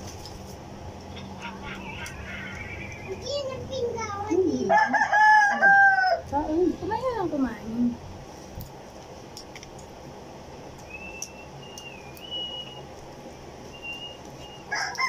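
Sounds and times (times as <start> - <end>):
faint high wavering whistle: 10.9 - 12.8, 13.7 - 14.7.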